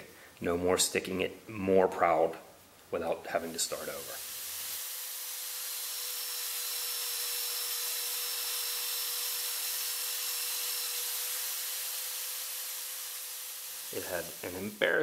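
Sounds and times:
belt sander grinding steel: 3.6s - 14.7s.

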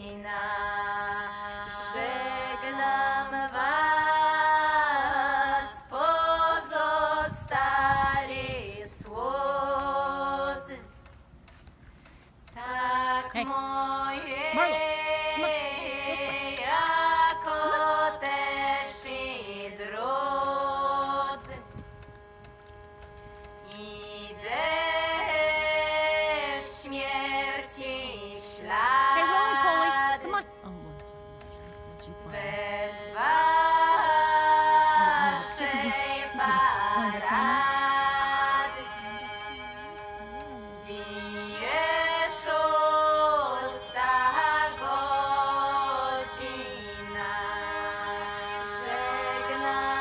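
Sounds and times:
slow song with long held notes: 0.0s - 50.0s.

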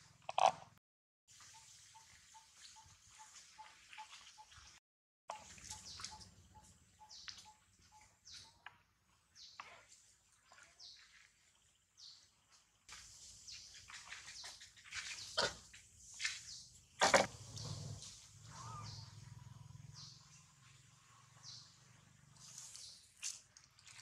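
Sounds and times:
birds chirping: 5.3s - 23.1s
sharp bird calls: 17.5s - 20.5s.

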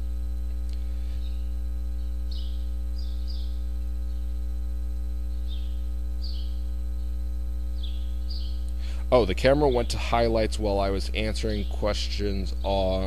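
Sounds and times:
electrical mains hum: 0.0s - 13.0s
faint bird chirps: 0.7s - 4.4s, 5.2s - 10.3s.

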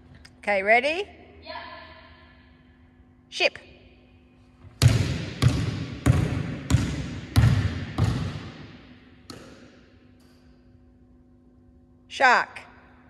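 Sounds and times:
basketball bouncing on wooden floor: 4.7s - 9.7s.

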